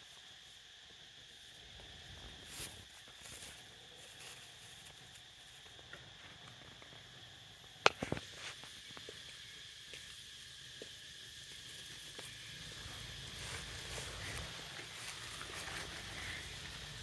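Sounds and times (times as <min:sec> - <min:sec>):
dry leaves rustling: 0:11.9 - 0:17.0.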